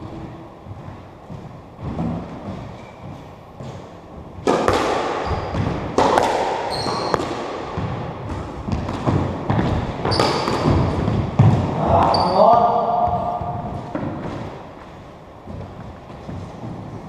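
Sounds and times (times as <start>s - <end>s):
sneaker squeaks on wooden floor: 0.8s - 3.9s, 5.2s - 5.9s, 6.7s - 7.9s, 9.5s - 14.6s
squash ball smacks: 4.4s - 11.7s.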